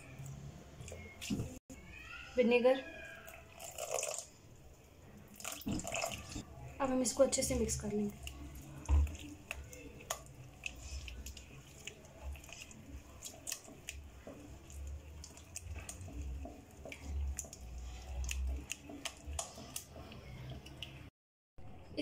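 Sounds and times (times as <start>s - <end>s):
wet squelching of marinade: 3.0s - 21.1s.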